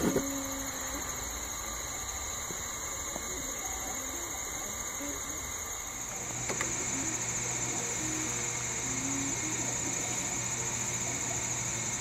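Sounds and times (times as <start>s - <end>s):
steady high whine: 0.0s - 12.0s
stepper motors whining: 0.0s - 12.0s.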